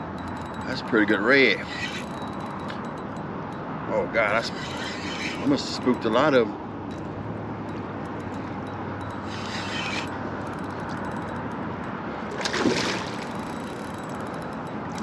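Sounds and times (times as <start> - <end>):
water lapping against kayak: 12.2 - 14.0.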